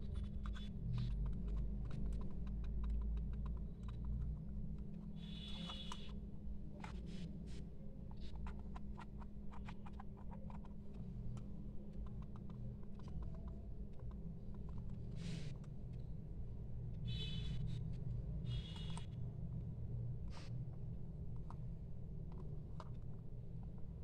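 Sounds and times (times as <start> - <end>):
mouse rubbing scrapes: 0.0 - 6.2, 6.8 - 15.7, 17.1 - 19.2
steady low hum: 0.0 - 24.0
computer mouse clicking: 0.1 - 6.2, 8.1 - 16.0, 18.4 - 19.2, 21.2 - 24.0.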